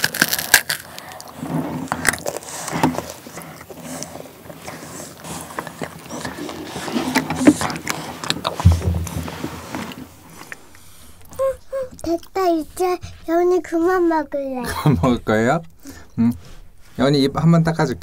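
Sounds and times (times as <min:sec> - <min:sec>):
crunchy chewing: 0:00.0 - 0:11.4
dull thump: 0:08.6 - 0:09.7.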